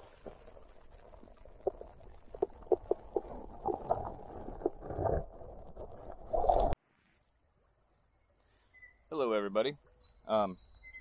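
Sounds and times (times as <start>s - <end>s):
low underwater rumble: 0.0s - 6.8s.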